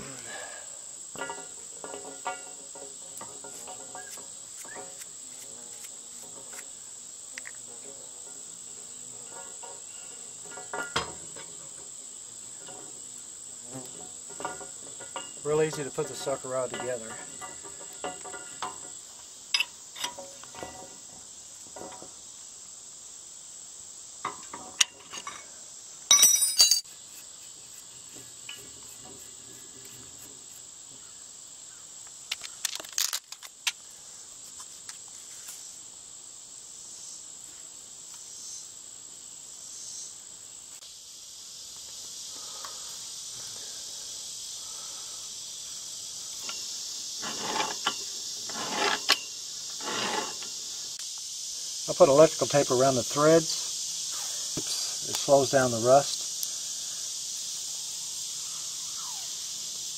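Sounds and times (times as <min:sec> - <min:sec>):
insects chorus: 0:00.0 - 0:59.9
wrenches clinking on metal pipe: 0:01.2 - 0:04.2, 0:10.4 - 0:11.2, 0:14.4 - 0:18.9, 0:19.5 - 0:20.9, 0:26.1 - 0:26.8, 0:46.4 - 0:50.5.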